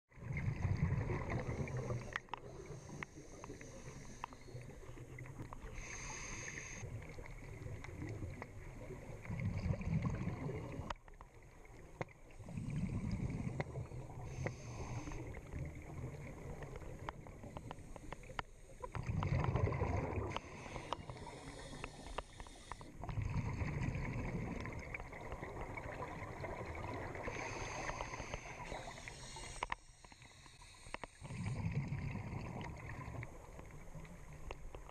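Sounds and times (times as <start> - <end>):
exhaled bubbles rumbling underwater: 0.1 - 34.9
regulator hiss: 5.7 - 6.8, 27.3 - 31.2.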